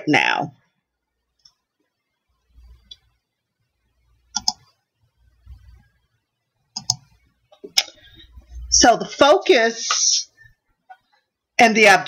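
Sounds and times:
computer mouse clicks: 0:04.3 - 0:04.8, 0:06.8 - 0:07.2.

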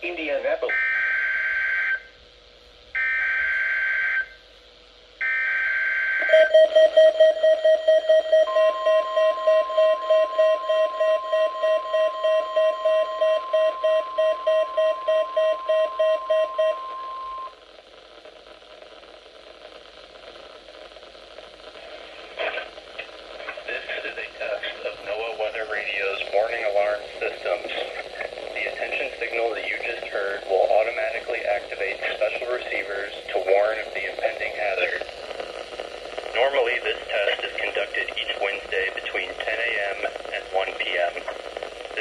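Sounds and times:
faint radio static: 0:00.0 - 0:00.8, 0:15.4 - 0:42.0
steady warning alarm tone: 0:00.7 - 0:02.1, 0:03.0 - 0:04.4, 0:05.2 - 0:17.5
announcer speaking: 0:28.6 - 0:35.0, 0:36.4 - 0:41.3.

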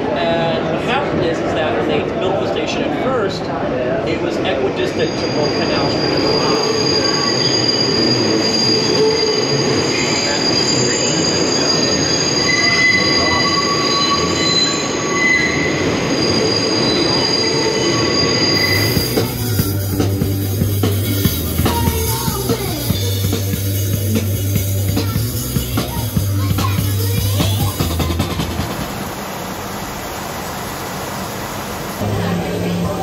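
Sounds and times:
subway car rumble: 0:00.0 - 0:33.0
train wheels squealing: 0:04.8 - 0:19.8
music with steady bass beat: 0:19.0 - 0:28.6.

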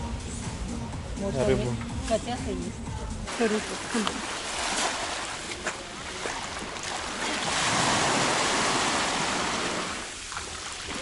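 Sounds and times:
waves washing onto pebble shore: 0:03.3 - 0:11.0.

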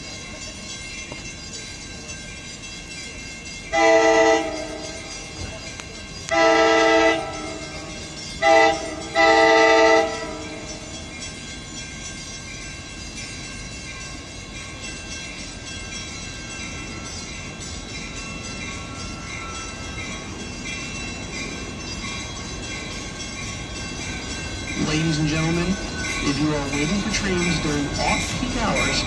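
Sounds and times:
train rumbling: 0:00.0 - 0:29.0
locomotive air horn blasts: 0:03.8 - 0:04.8, 0:06.3 - 0:07.6, 0:08.4 - 0:10.4.

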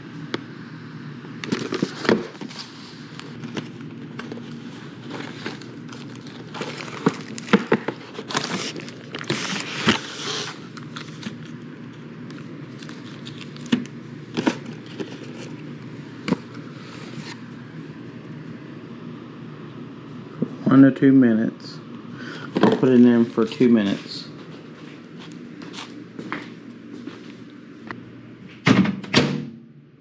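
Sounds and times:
steady low hum: 0:00.0 - 0:30.0
cardboard carton and plastic tray handled: 0:03.4 - 0:11.4.

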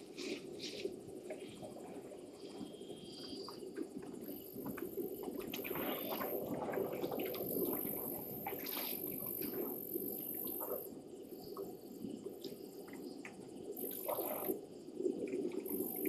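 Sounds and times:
water splashing and dripping: 0:03.4 - 0:10.8, 0:12.3 - 0:14.6.

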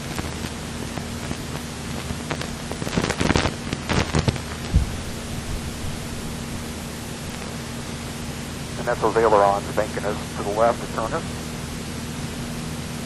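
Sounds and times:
crackling clicks and knocks: 0:00.0 - 0:05.0, 0:07.3 - 0:07.6
propeller plane engine droning: 0:00.0 - 0:13.0.

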